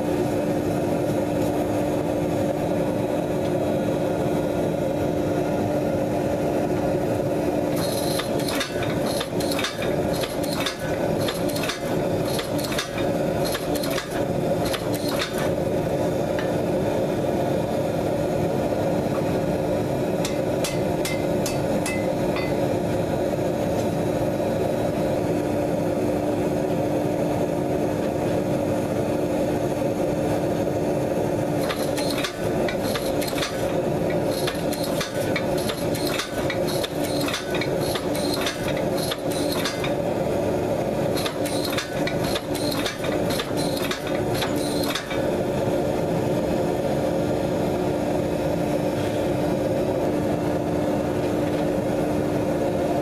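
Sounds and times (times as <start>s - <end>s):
hydraulic power unit humming: 0.0s - 53.0s
sharp clicks and metallic clanks: 7.8s - 15.6s, 31.6s - 40.0s, 41.2s - 45.3s.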